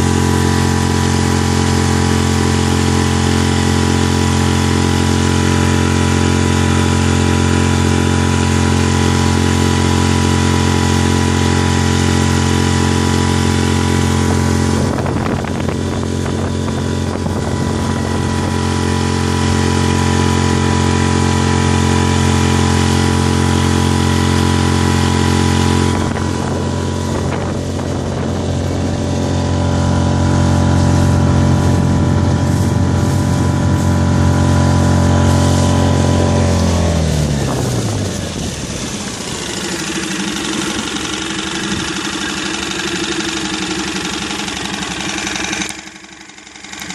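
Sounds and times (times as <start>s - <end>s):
outboard motor running: 0.0s - 46.9s
rough rushing noise: 0.0s - 46.9s.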